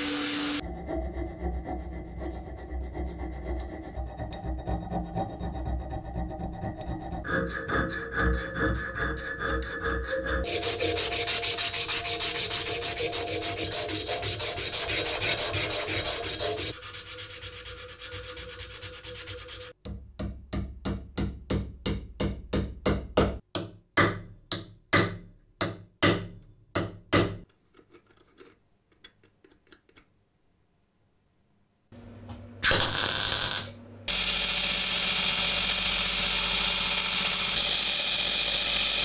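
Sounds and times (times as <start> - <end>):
hand file rasping on metal: 1.5 - 19.8
abrasive paper rubbing metal: 10.4 - 19.8.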